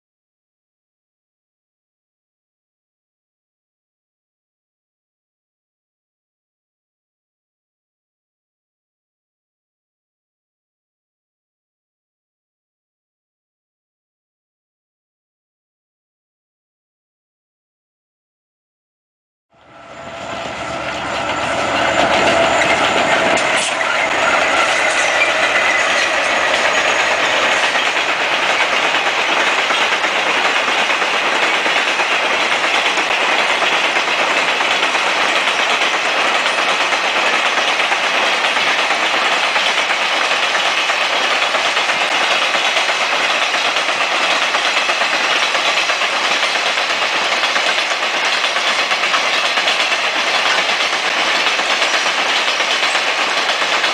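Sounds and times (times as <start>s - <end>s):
locomotive engine drone: 19.5s - 31.6s
train wheels rumbling on rails: 19.6s - 53.9s.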